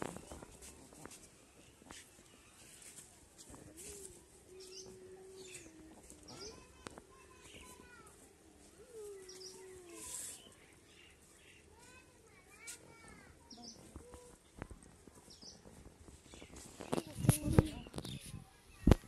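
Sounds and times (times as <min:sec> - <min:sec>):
birds chirping: 0:03.9 - 0:12.7, 0:13.3 - 0:18.5.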